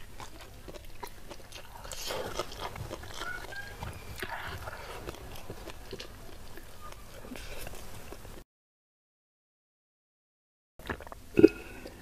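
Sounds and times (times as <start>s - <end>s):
wet chewing: 0.0s - 8.4s.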